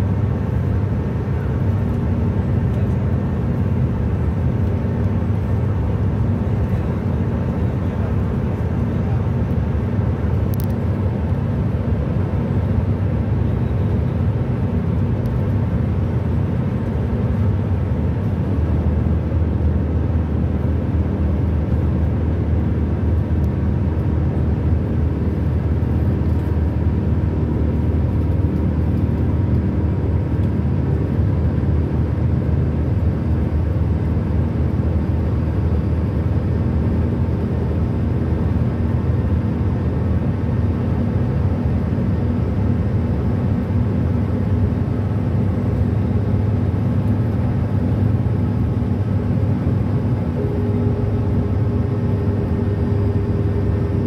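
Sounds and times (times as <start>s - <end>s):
car road and engine noise: 0.0s - 54.0s
click: 10.5s - 10.8s.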